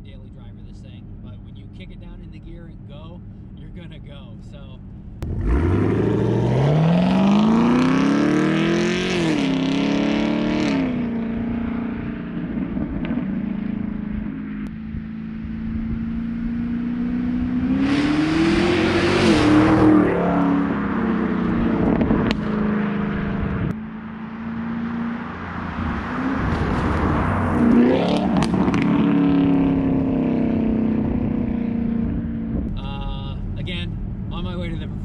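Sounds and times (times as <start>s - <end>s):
car accelerating past: 5.2s - 32.6s.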